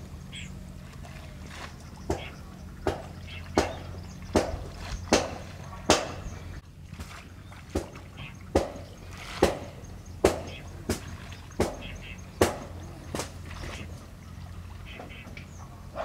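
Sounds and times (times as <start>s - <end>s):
sharp knocking strikes: 2.1s - 6.2s, 8.6s - 13.4s.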